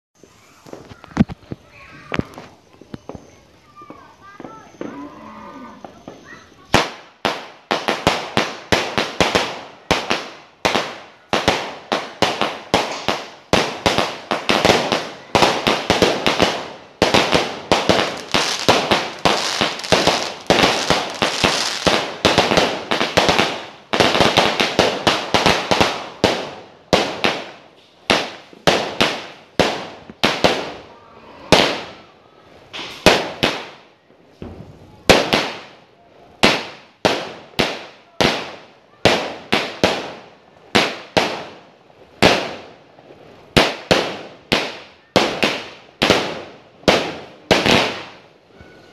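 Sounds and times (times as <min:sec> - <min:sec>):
firework bangs: 0:00.2 - 0:05.0, 0:05.8 - 0:48.4.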